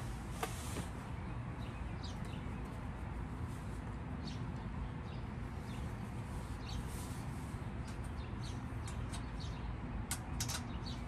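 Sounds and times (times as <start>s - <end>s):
low outdoor rumble: 0.0s - 11.0s
small birds chirping: 0.0s - 11.0s
sharp clicks: 10.0s - 11.0s.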